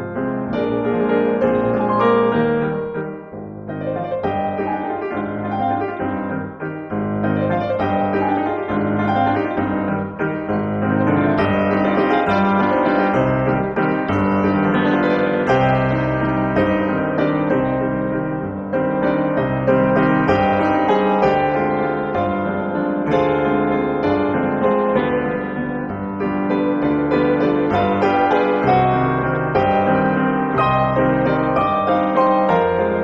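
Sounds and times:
slow piano music: 0.0s - 33.0s.

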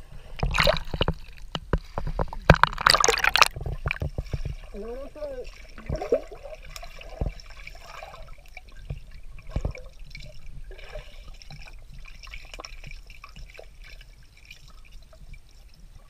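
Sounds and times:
low underwater thumps: 0.0s - 4.8s, 5.6s - 7.8s, 8.6s - 13.6s
muffled underwater splashing: 0.0s - 16.0s
water at surface: 0.0s - 16.0s.

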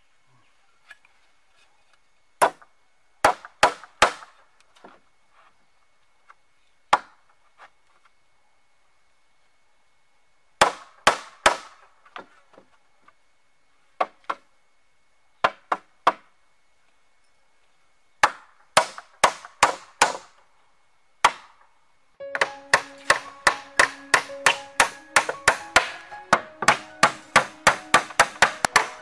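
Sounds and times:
hatchet hammering nails into wood: 3.2s - 4.2s, 10.6s - 11.8s, 18.2s - 20.3s, 22.3s - 29.0s.

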